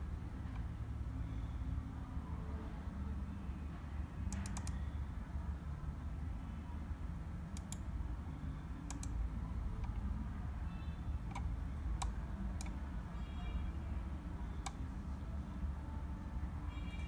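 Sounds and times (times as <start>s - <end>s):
computer mouse buttons clicking: 4.3s - 4.8s, 7.6s - 7.8s, 8.9s - 9.2s, 11.3s - 12.8s, 14.6s - 14.8s.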